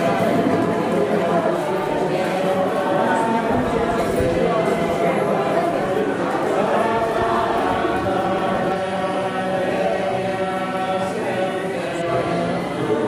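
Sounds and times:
voices chanting in long notes: 0.0s - 13.0s.

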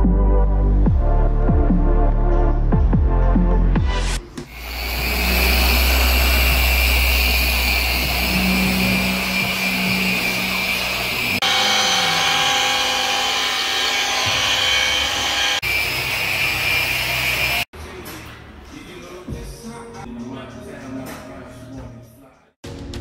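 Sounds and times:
machine polisher whirring: 4.4s - 17.7s.

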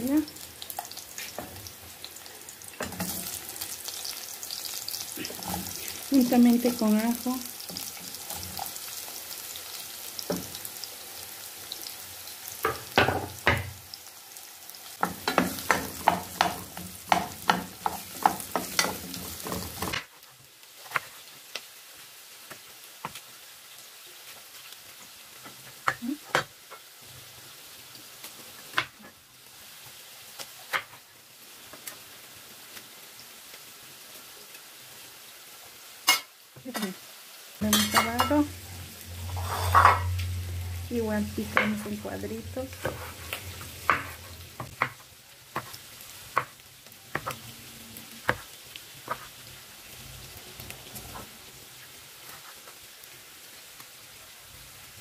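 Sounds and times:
onion and garlic sizzling in oil: 0.0s - 55.0s
spatula scraping and knocking pot: 39.3s - 40.1s, 42.7s - 45.0s.

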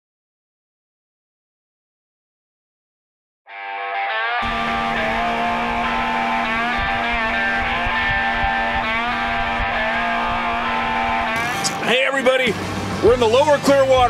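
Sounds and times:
guitar with sliding notes: 3.5s - 14.0s
outboard motor running: 4.4s - 14.0s.

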